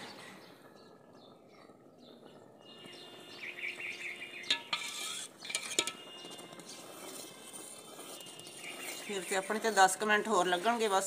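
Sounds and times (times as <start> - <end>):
metal utensil scraping a pot: 4.4 - 11.0.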